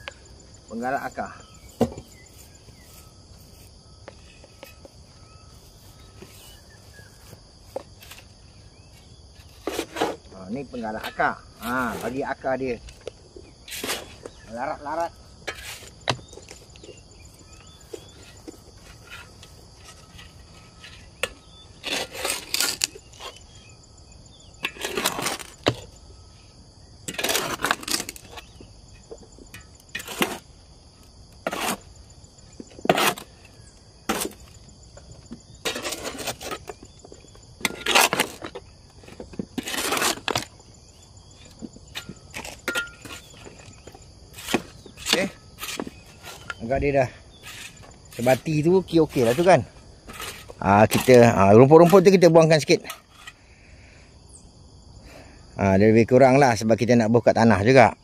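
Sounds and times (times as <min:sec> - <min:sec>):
garden tool scraping soil: 0:05.5 - 0:13.0, 0:13.6 - 0:23.7, 0:24.6 - 0:25.9, 0:27.0 - 0:28.6, 0:29.5 - 0:40.7, 0:41.3 - 0:53.4.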